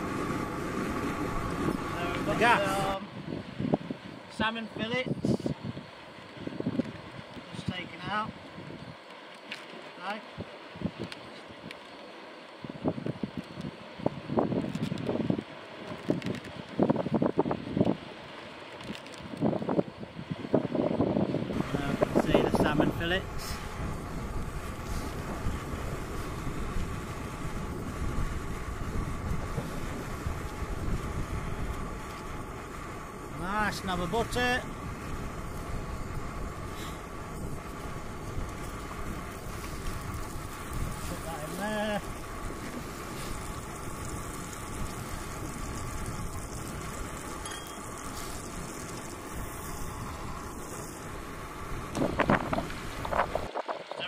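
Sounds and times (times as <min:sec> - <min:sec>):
wind buffeting microphone: 0:00.0 - 0:09.0, 0:12.6 - 0:18.3, 0:19.2 - 0:54.0
camp stove hissing: 0:00.0 - 0:54.0
butter melting in frying pan: 0:21.5 - 0:53.5.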